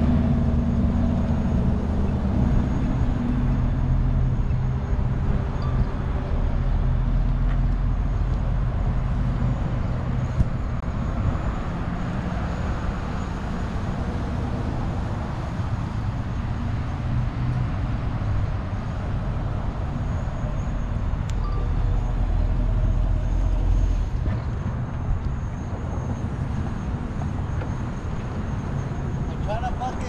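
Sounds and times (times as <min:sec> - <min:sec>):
car engine rumbling: 0:00.0 - 0:30.0.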